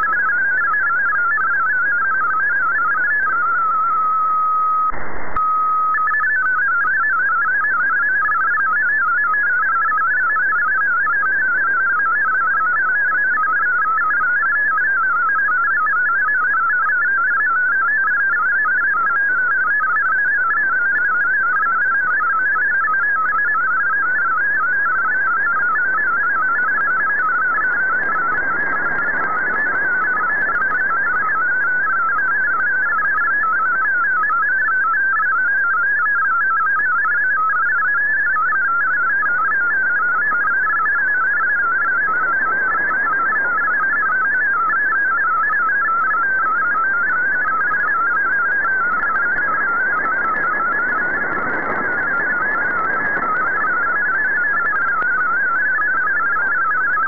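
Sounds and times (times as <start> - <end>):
faint radio static: 4.9 - 5.4, 25.4 - 33.3, 39.8 - 55.8.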